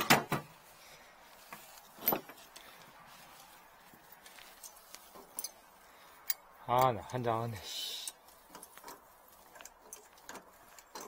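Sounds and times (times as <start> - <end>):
hand tools clinking: 1.5 - 2.8, 4.1 - 11.0.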